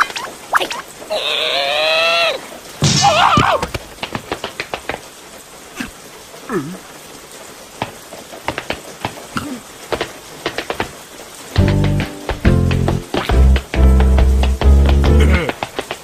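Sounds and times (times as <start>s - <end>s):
cartoon character vocal sounds: 0.0s - 2.4s
cartoon raindrops dripping: 0.0s - 16.0s.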